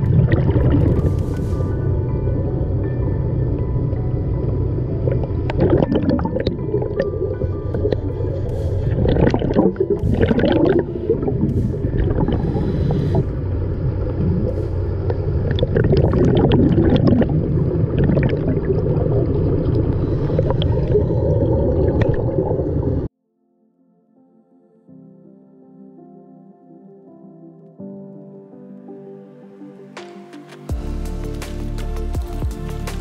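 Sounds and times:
gurgling regulator exhaust bubbles: 0.0s - 1.8s, 4.0s - 23.1s
steady low underwater rumble: 0.0s - 23.1s.

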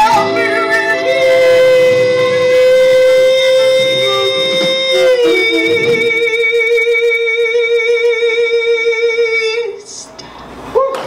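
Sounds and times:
woman singing long note: 0.0s - 7.5s.

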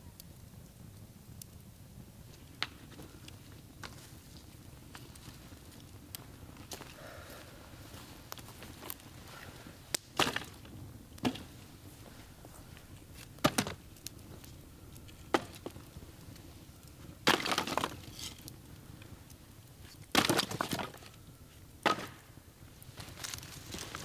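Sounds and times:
dry sticks cracking: 2.4s - 11.5s, 12.7s - 21.2s, 22.9s - 24.0s.

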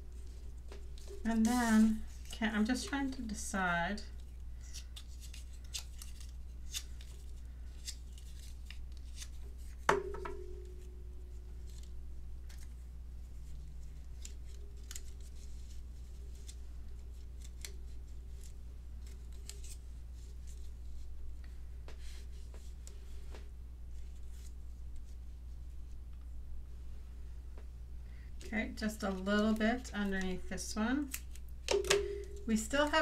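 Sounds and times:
low steady hum: 0.0s - 33.0s
paper clicks and rustles: 4.2s - 9.8s, 13.5s - 21.0s.

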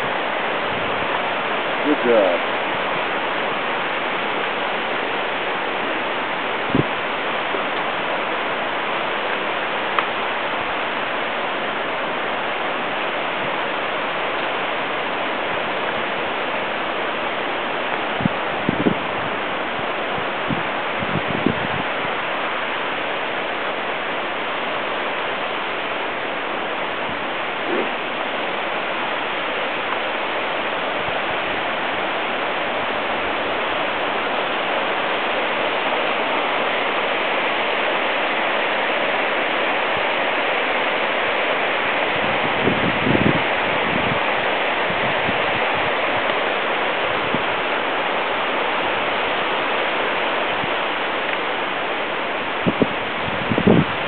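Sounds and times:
rapids rushing: 0.0s - 54.0s.

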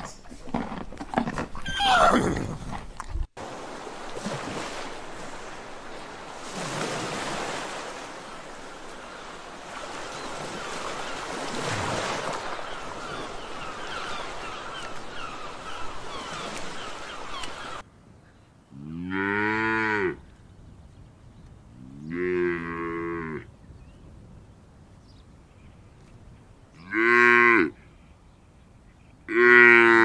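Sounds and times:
small waves washing on beach: 3.4s - 17.8s
cow mooing: 29.3s - 30.0s.

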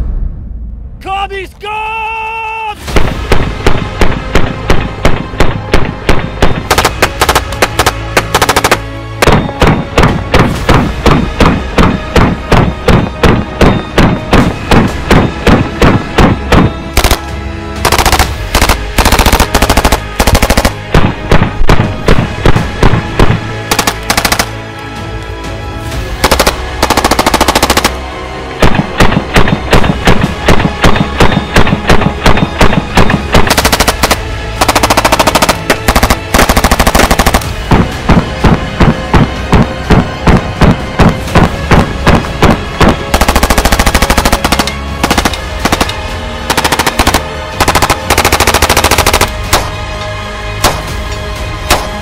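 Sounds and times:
submachine gun firing bursts: 6.7s - 9.4s, 17.0s - 20.9s, 23.7s - 24.6s, 26.2s - 28.0s, 31.2s - 37.6s, 42.8s - 49.7s.

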